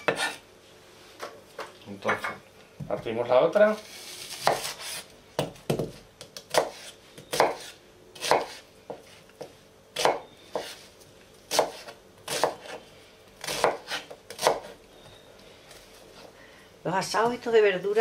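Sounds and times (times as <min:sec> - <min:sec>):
knife chopping on cutting board: 0:00.0 - 0:00.4, 0:04.4 - 0:10.8, 0:11.5 - 0:12.8, 0:13.4 - 0:14.8.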